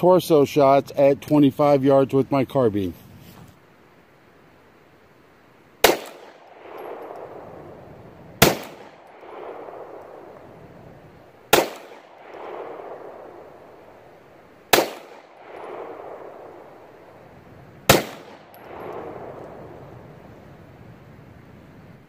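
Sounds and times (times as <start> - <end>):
gunshots with rolling echo: 5.8 - 20.3.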